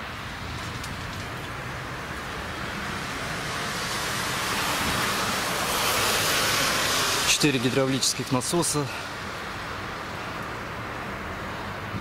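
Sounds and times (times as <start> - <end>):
rain hissing: 0.3 - 7.8.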